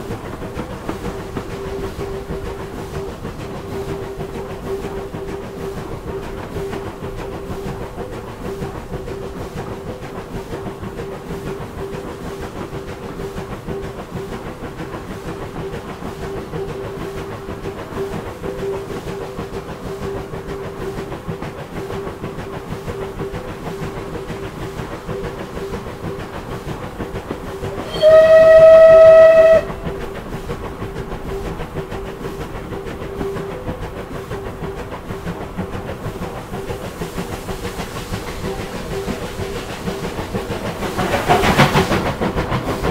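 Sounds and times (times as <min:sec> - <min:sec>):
steam locomotive hum and hiss: 0:00.0 - 0:42.9
steam whistle blast: 0:27.8 - 0:29.9.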